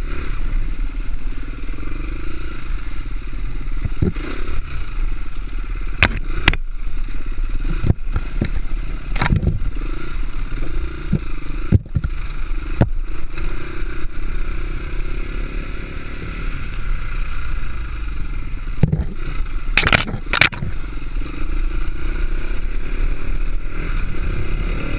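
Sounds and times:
dirt bike engine revving: 0.0 - 24.9
bike knocking over rocks: 19.8 - 20.8.

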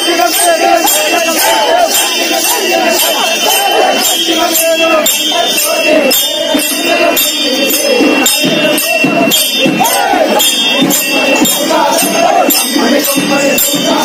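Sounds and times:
jingling bells beating a rhythm: 0.0 - 14.0
voices singing and chanting: 0.0 - 14.0.

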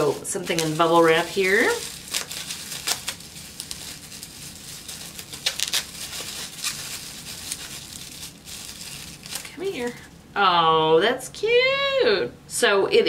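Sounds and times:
bubble wrap crinkling: 0.0 - 10.3.

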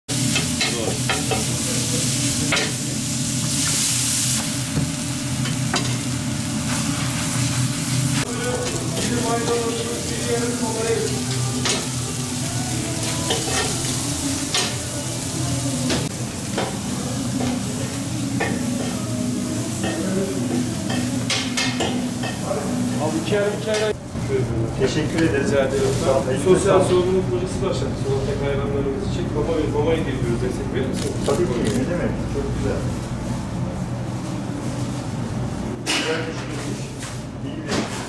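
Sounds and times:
meat sizzling on a griddle: 0.1 - 23.7.

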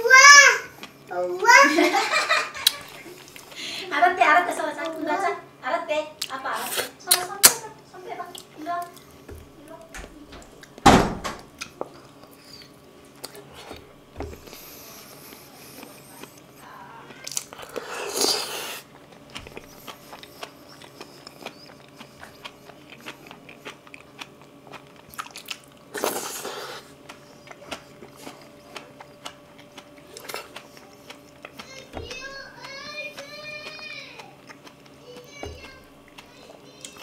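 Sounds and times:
chewing food: 0.6 - 1.7, 2.6 - 3.6, 4.5 - 5.2, 8.2 - 10.8, 11.5 - 37.0
wet mouth clicks: 6.2 - 7.6, 17.2 - 31.8.

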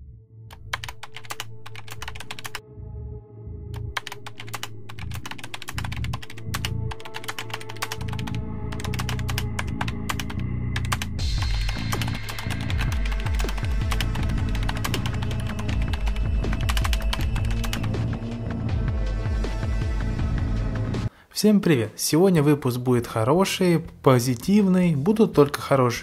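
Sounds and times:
low droning music: 0.0 - 21.1
keyboard typing clicks: 0.5 - 2.6, 3.8 - 17.9.

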